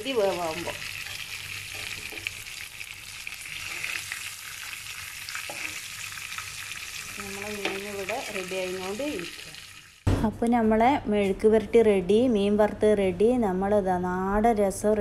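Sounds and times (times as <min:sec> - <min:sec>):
fish sizzling in oil: 0:00.0 - 0:10.1.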